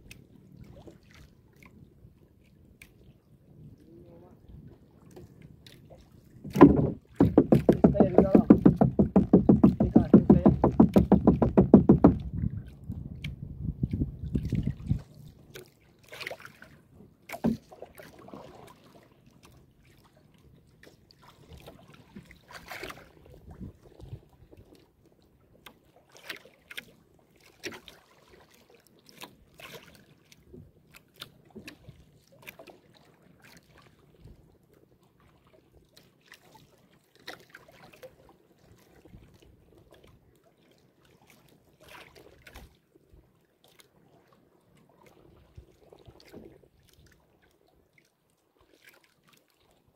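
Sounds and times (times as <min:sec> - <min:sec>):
water sloshing against hull: 0:00.0 - 0:49.9
paddle splashing and knocking: 0:05.1 - 0:20.0, 0:21.2 - 0:23.3, 0:25.6 - 0:34.4, 0:35.2 - 0:38.1, 0:38.7 - 0:42.8, 0:43.6 - 0:47.2, 0:48.6 - 0:49.6.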